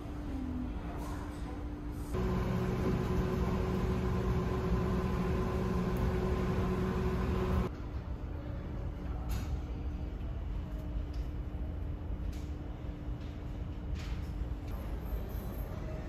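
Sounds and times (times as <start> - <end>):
microwave oven humming: 2.1 - 7.7
ship engines rumbling: 2.2 - 7.7.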